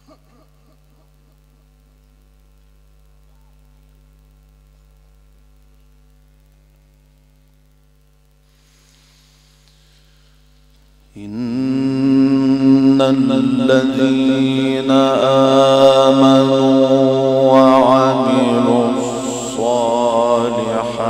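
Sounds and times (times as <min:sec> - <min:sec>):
electrical mains hum: 0:00.0 - 0:21.0
faint hiss: 0:01.3 - 0:11.8.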